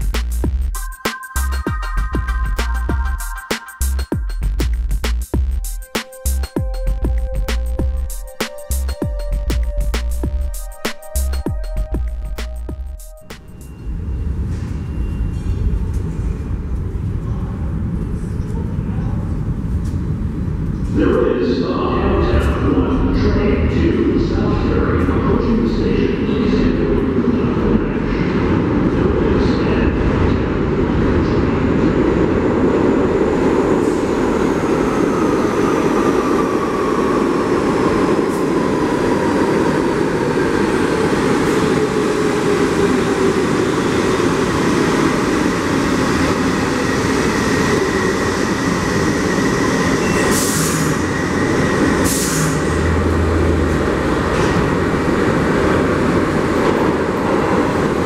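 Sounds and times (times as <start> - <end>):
subway train rumbling on rails: 0.0 - 58.0
thin high tone: 0.7 - 4.6.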